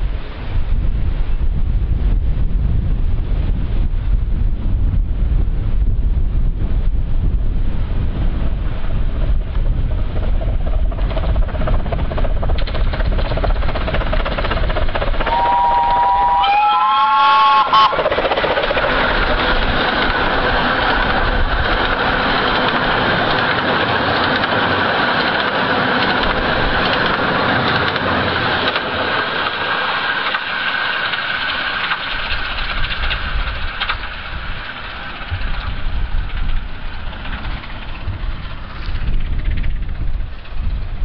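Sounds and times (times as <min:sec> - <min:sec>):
wind buffeting microphone: 0:00.0 - 0:41.0
wheels rolling on rails: 0:06.7 - 0:41.0
miniature steam train running: 0:08.4 - 0:41.0.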